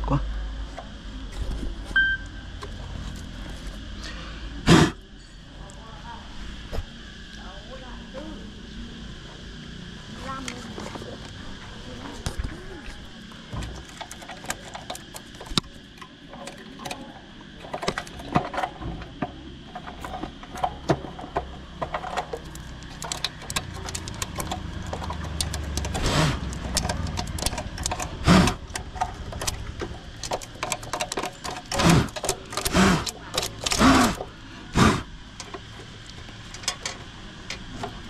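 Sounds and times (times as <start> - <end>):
small clicks and scrapes: 12.1 - 38.0.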